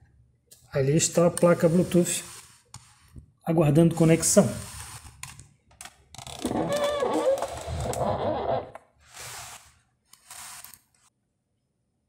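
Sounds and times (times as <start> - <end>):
person speaking: 0.7 - 2.5, 3.4 - 4.8
short hissing noises: 1.4 - 3.1, 4.2 - 5.1, 9.1 - 10.8.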